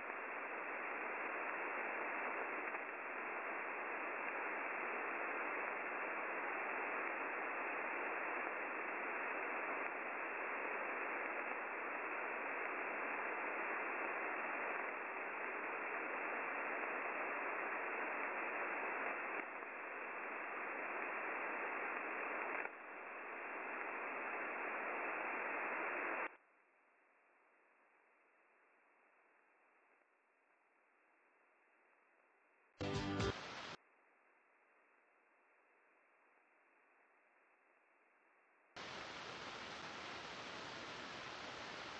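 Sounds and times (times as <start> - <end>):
radio static hiss: 0.0 - 26.4, 32.8 - 33.8, 38.8 - 41.9.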